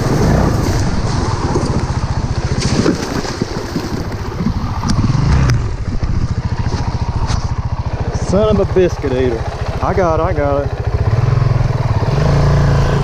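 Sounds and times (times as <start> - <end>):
water splashing: 0.0 - 6.5
motorcycle engine at low revs: 0.0 - 13.0.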